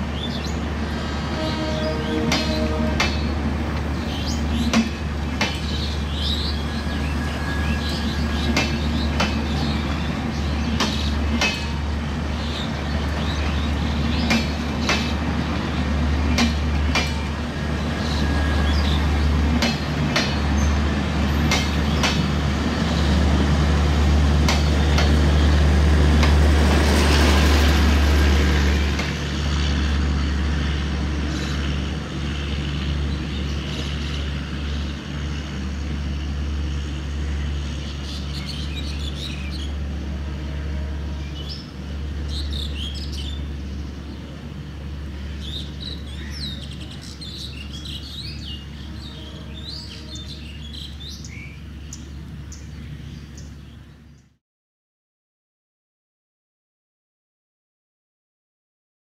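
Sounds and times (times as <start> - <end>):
train coaches rolling past: 0.0 - 54.1
birds chirping: 41.0 - 54.3.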